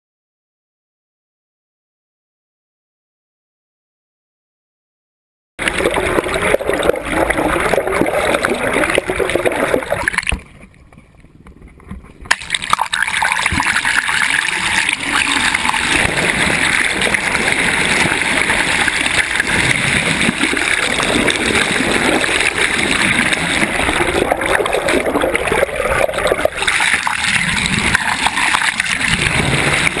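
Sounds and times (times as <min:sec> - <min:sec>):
water rushing and splashing: 0:05.6 - 0:10.8, 0:12.0 - 0:30.0.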